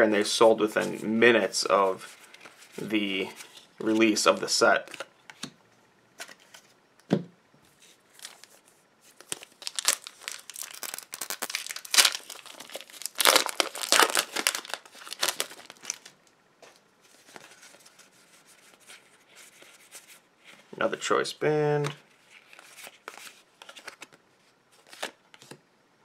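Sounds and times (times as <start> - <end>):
cards being handled: 7.7 - 20.6, 21.8 - 24.2
foil wrapper tearing and crinkling: 9.2 - 16.2.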